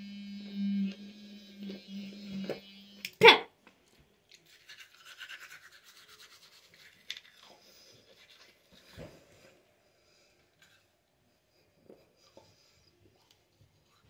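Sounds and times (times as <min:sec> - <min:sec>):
toothbrush scrubbing teeth: 0:04.3 - 0:09.1.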